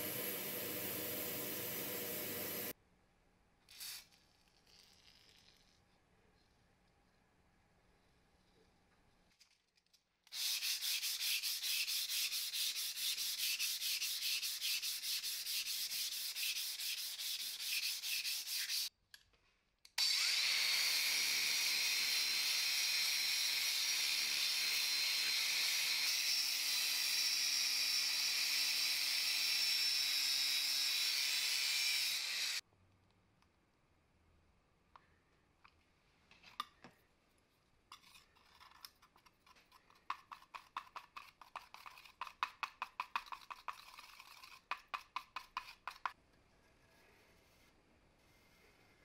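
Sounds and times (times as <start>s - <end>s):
sanding metal back and forth: 10.3s - 18.9s, 39.7s - 46.2s
angle grinder grinding metal: 20.0s - 32.6s.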